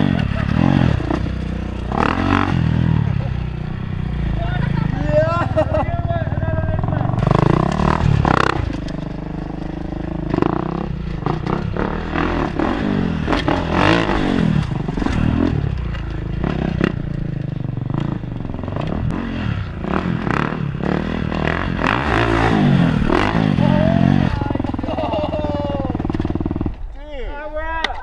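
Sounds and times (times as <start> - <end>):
dirt bike engine revving: 0.0 - 26.9.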